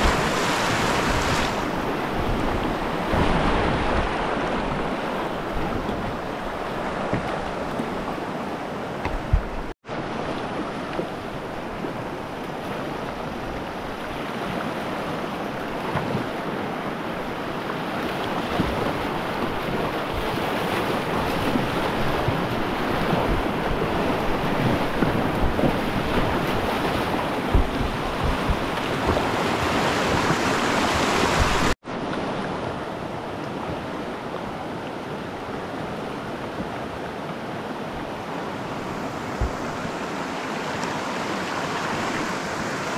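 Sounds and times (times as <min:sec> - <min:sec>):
wind buffeting microphone: 0:00.0 - 0:08.3, 0:09.0 - 0:09.8, 0:15.8 - 0:31.8, 0:37.8 - 0:42.9
whitewater rushing: 0:00.0 - 0:15.8, 0:16.4 - 0:42.9.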